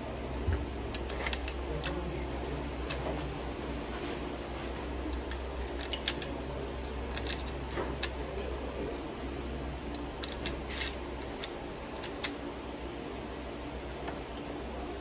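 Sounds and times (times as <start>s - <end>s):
steady low hum: 0.0s - 15.0s
metallic clicks of cartridges loading: 5.1s - 6.4s, 9.9s - 12.4s.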